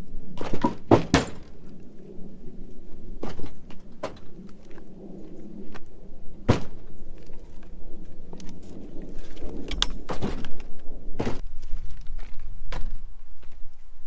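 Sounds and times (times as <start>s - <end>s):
low rumbling handling noise: 0.2s - 13.3s
wooden logs knocking: 0.4s - 1.5s.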